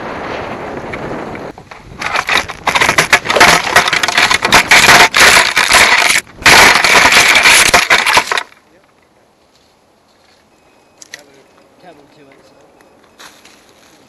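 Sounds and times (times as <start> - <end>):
twigs scraping foam glider: 0.0 - 8.8.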